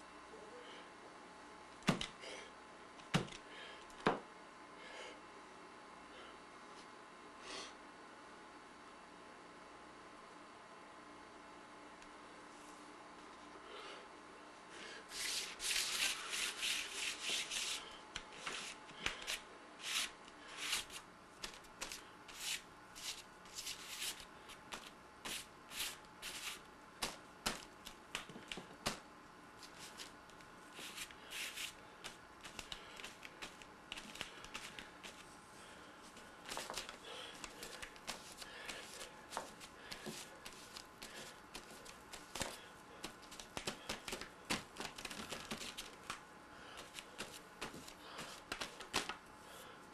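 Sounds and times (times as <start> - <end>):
hands rubbing paint on canvas: 15.1 - 17.8, 30.8 - 35.3.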